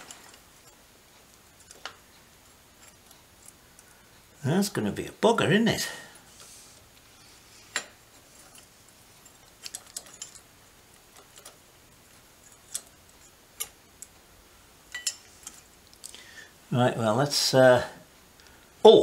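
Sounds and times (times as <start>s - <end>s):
small metal parts clinking: 7.7s - 10.5s.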